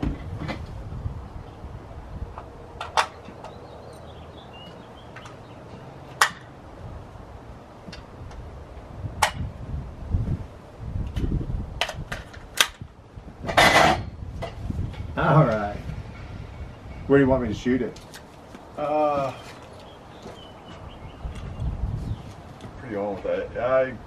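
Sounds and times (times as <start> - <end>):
sharp cracks: 6.2 - 6.5.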